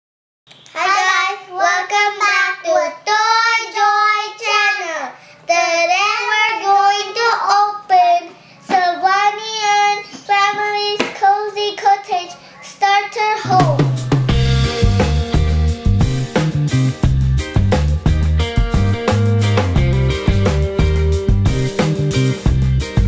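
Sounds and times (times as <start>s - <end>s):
young child singing: 0.7s - 13.9s.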